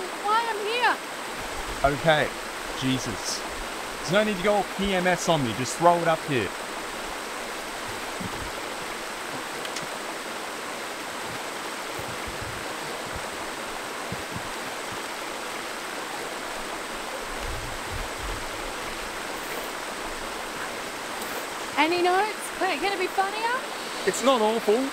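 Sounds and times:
creek water rushing: 0:00.0 - 0:24.9
faint low bumps: 0:11.1 - 0:15.4.

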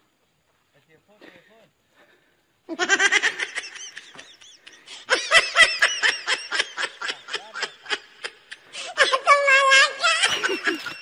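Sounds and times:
loud high-pitched laughter: 0:02.7 - 0:11.0.

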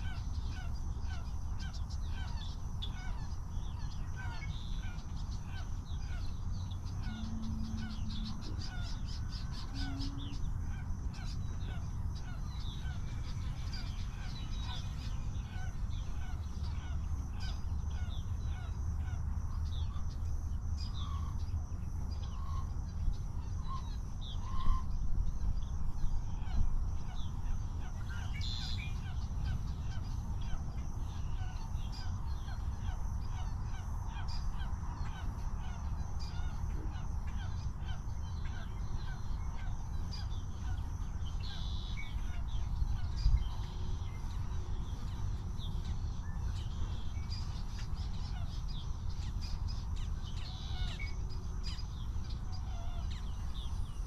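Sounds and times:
harsh caw-like bird calls: 0:00.0 - 0:25.7
steady low rumble: 0:00.0 - 0:54.0.

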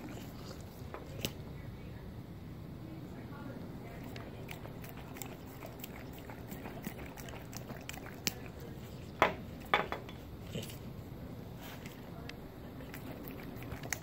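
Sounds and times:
dog licking a spoon: 0:03.9 - 0:09.7, 0:11.6 - 0:14.0.

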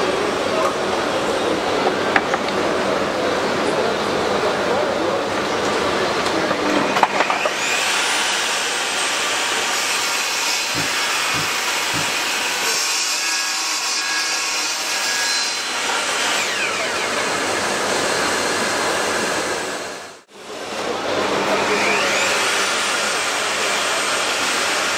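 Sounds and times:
table saw motor whine: 0:06.5 - 0:20.2, 0:21.3 - 0:24.9
saw ripping wooden board: 0:10.1 - 0:13.2.

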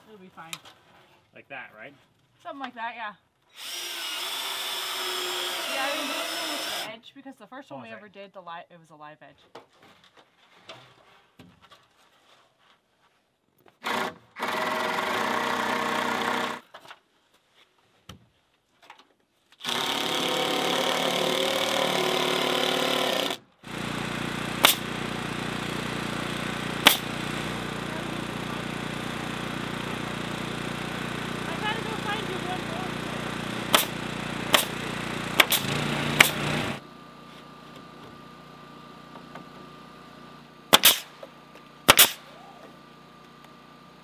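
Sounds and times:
power tool running: 0:03.5 - 0:07.0, 0:13.8 - 0:16.6, 0:19.6 - 0:44.0
machine drone: 0:23.1 - 0:36.9
nail gun shots: 0:24.6 - 0:25.0, 0:26.8 - 0:27.2, 0:33.7 - 0:36.7, 0:40.7 - 0:41.2, 0:41.8 - 0:42.3.

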